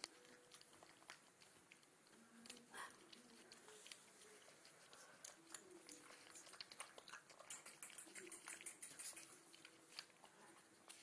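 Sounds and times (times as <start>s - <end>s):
puppies lapping and chewing food: 0.0s - 11.0s.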